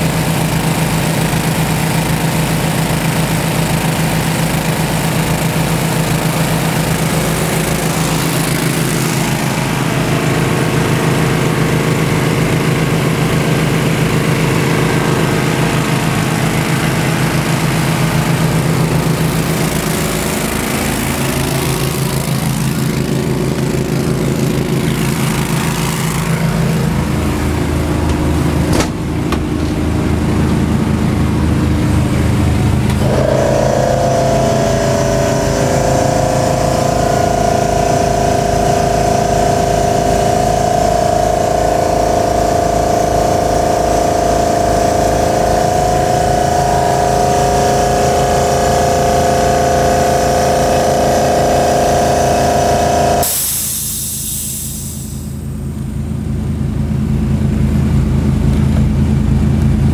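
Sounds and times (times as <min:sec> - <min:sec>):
engine running: 0:00.0 - 0:59.9
short knock: 0:28.1 - 0:29.8.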